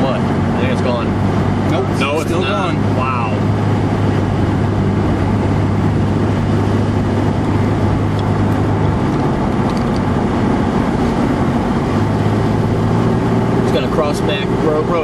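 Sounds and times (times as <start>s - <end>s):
car road and engine drone: 0.0s - 15.0s.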